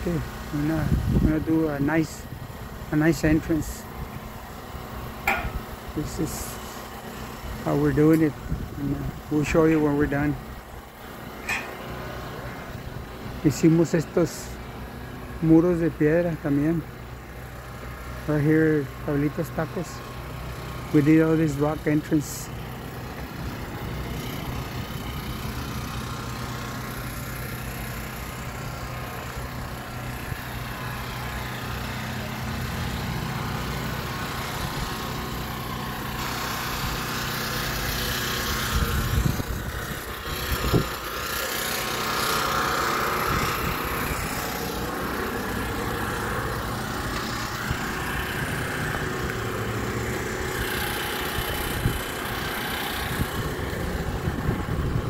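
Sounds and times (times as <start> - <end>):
engine hum: 0.0 - 55.0
short knocks: 5.3 - 5.6.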